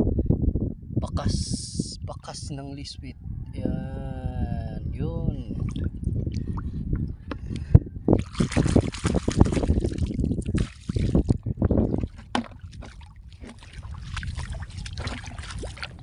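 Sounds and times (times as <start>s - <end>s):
shallow water splashing and sloshing: 8.2s - 16.0s.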